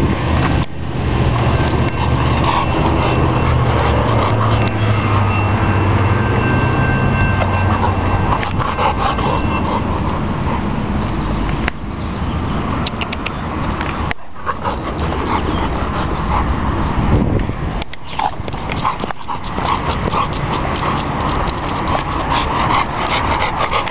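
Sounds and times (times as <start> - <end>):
dog panting: 1.6 - 5.6, 7.3 - 11.0, 14.2 - 17.1, 18.0 - 23.9.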